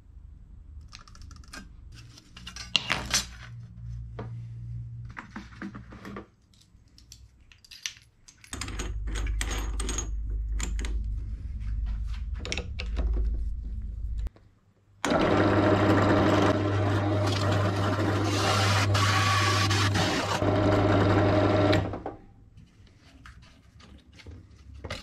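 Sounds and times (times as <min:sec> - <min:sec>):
small objects clicking and clinking: 0:06.5 - 0:10.8
low machine hum: 0:08.6 - 0:14.3.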